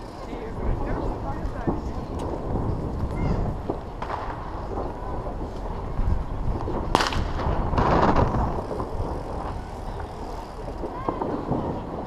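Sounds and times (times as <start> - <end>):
bike riding on snow: 0.0 - 12.0
firework bang: 3.4 - 5.4, 6.6 - 9.2.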